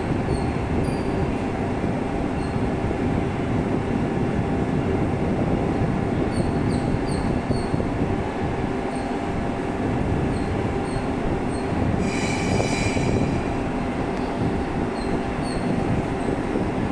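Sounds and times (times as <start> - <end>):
train rumbling: 0.0 - 16.9
high-pitched squeal: 12.0 - 13.8.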